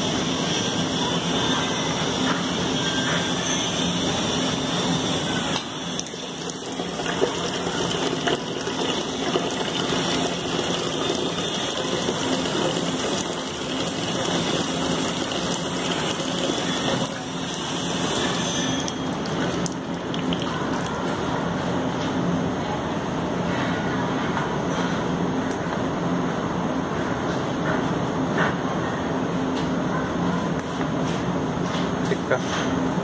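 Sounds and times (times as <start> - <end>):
pump humming: 3.2 - 21.9
water pouring into a jug: 6.0 - 21.2.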